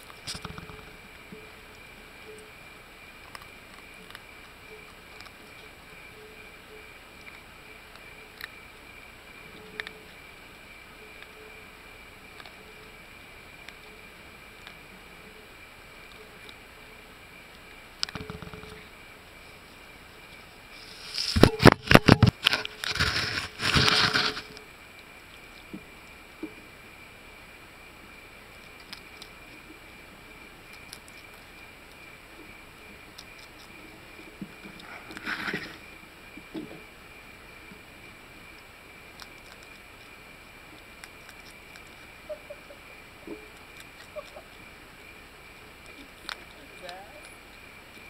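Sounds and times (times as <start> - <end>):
claws clicking and tapping on wood: 0.0 - 0.9, 18.0 - 18.8
animals chewing: 0.0 - 48.0
faint high whine: 0.0 - 48.0
animals scraping and rustling: 18.1 - 24.6, 33.2 - 36.9.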